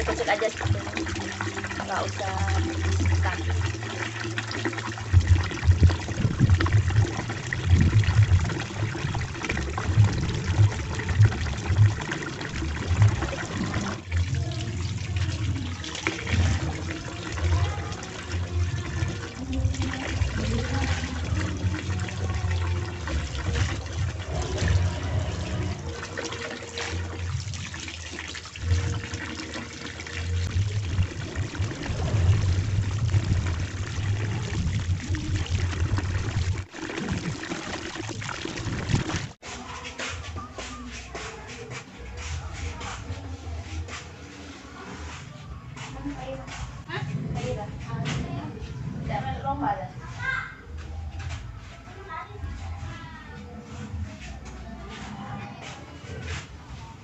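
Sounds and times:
tap water pouring into tub: 0.0 - 39.4
water splashing and sloshing: 0.0 - 57.0.

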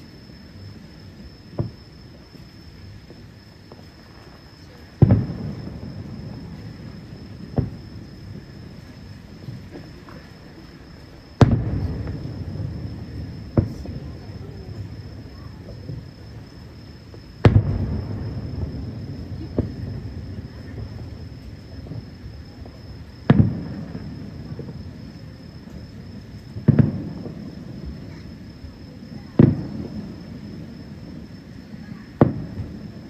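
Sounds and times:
insect trill: 0.0 - 33.0
distant firework booms: 0.6 - 33.0.

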